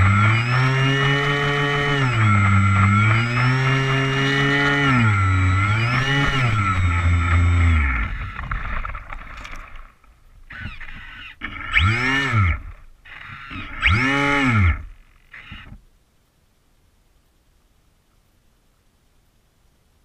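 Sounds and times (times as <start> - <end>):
airboat engine revving: 0.0 - 9.2, 10.5 - 15.8.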